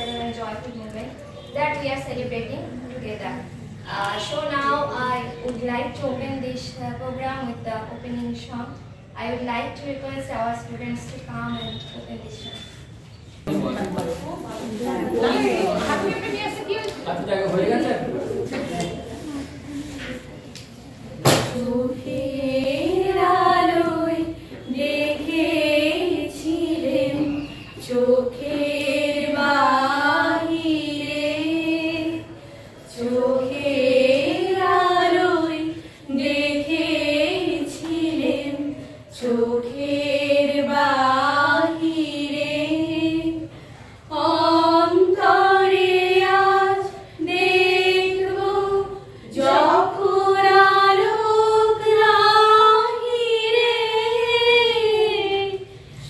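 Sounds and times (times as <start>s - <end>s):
women singing in unison: 21.3s - 56.0s.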